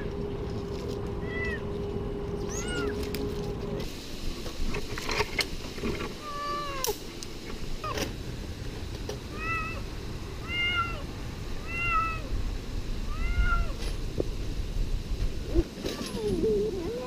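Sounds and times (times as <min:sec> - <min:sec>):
cat meowing: 0:01.2 - 0:01.6, 0:02.4 - 0:03.0, 0:06.2 - 0:06.9, 0:09.3 - 0:09.8, 0:10.4 - 0:12.3, 0:13.1 - 0:13.8.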